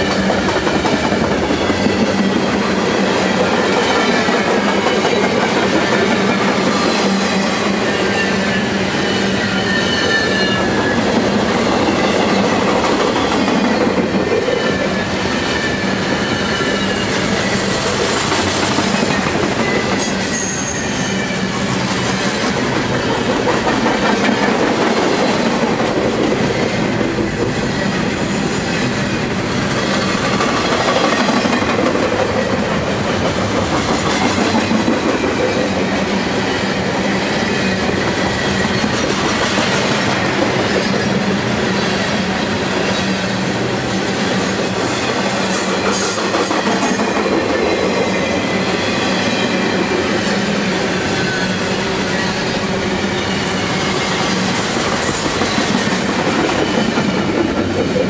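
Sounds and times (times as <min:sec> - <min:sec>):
steel wheels rumbling on rails: 0:00.0 - 0:58.0
high wheel squeals: 0:06.2 - 0:12.4, 0:14.6 - 0:22.5, 0:47.8 - 0:57.0.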